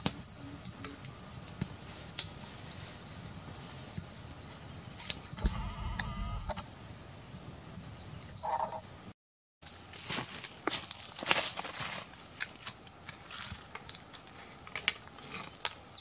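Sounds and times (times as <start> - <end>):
short animal call: 5.4 - 6.6.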